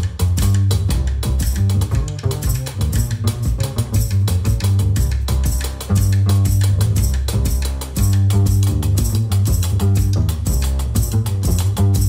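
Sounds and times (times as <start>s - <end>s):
double bass plucked notes: 0.0s - 12.0s
drum and cymbal strokes: 0.0s - 12.0s
jazz trio music: 0.0s - 12.0s.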